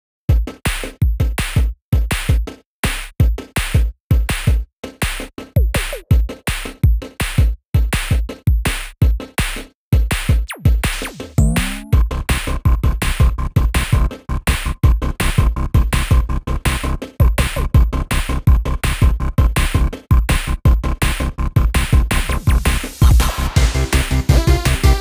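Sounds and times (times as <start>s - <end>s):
electronic music with drum beat: 0.3s - 25.0s
synth tones sliding in pitch: 11.4s - 12.0s.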